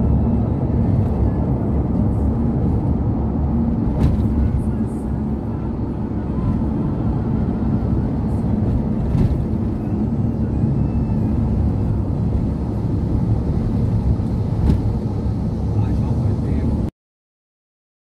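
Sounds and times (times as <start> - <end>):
bus engine and tyre rumble: 0.0 - 16.9.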